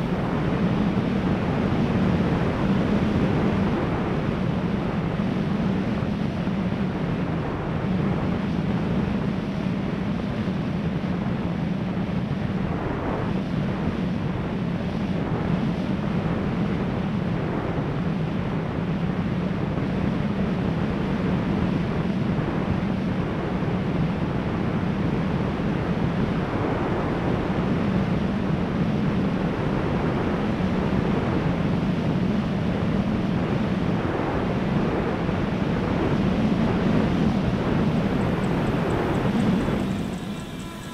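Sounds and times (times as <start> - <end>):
wind rushing over microphone: 0.0 - 40.9
electric motor and propeller: 37.4 - 40.9.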